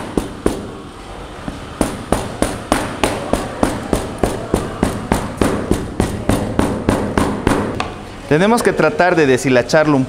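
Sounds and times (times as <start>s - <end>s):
meat pounded on cutting board: 0.0s - 0.7s, 1.8s - 8.0s.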